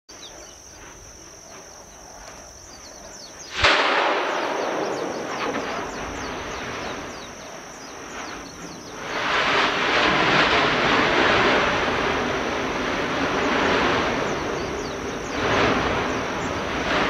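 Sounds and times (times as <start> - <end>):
long rushing rumble: 3.5 - 17.0
volcanic explosion boom: 3.5 - 17.0.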